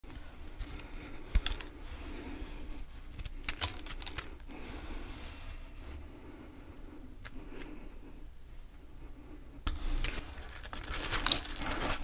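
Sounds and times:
frost ice crunching: 0:10.0 - 0:12.0.

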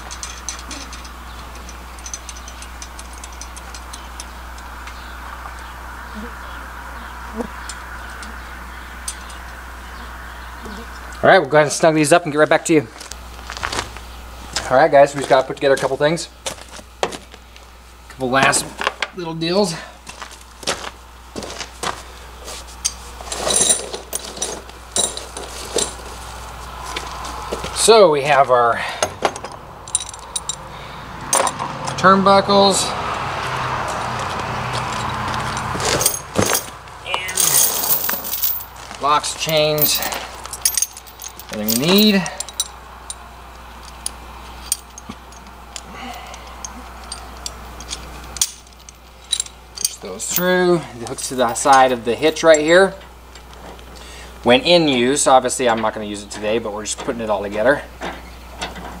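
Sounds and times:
metal hardware clinking and rattling: 0:00.0 - 0:05.7, 0:09.0 - 0:09.6, 0:22.8 - 0:26.2, 0:29.0 - 0:30.7, 0:31.3 - 0:32.1, 0:33.8 - 0:36.8, 0:37.4 - 0:54.0, 0:54.8 - 0:59.0
low hum: 0:20.4 - 0:54.3.

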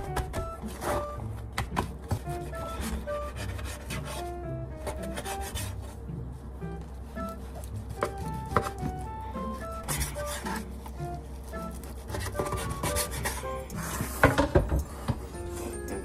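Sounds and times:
light background music: 0:00.0 - 0:16.0
scraping on cutting board: 0:02.1 - 0:06.0, 0:09.5 - 0:10.8, 0:11.6 - 0:14.6.

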